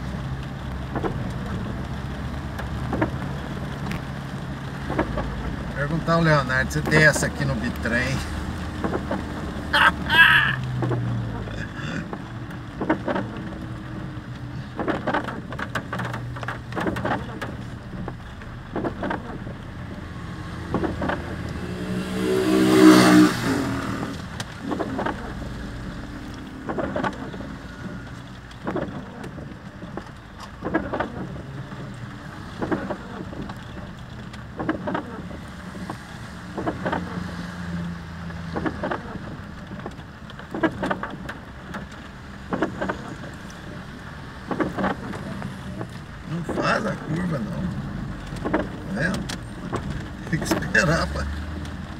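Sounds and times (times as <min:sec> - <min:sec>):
car engine and tyre noise: 0:00.0 - 0:51.9
passing vehicle pitch sweep: 0:21.3 - 0:24.4.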